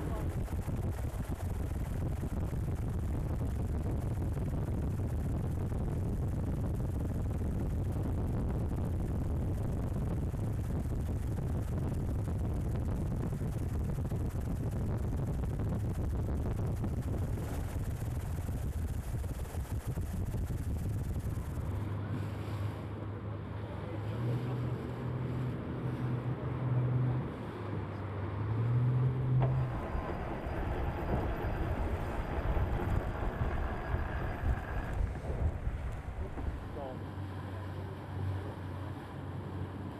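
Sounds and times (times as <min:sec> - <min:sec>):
water rushing around boats: 0:00.0 - 0:07.0, 0:16.6 - 0:39.9
wind buffeting microphone: 0:00.0 - 0:22.4, 0:29.2 - 0:37.0
low motor drone: 0:00.0 - 0:39.9.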